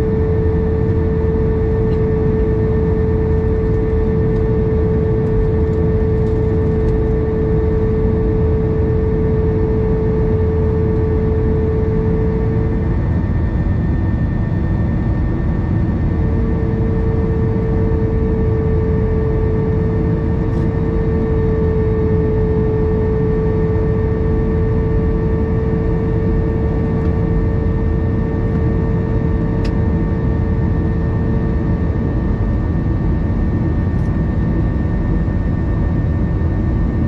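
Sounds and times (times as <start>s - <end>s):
jet engine and airflow rumble: 0.0s - 37.0s
steady hum tone: 0.0s - 37.0s.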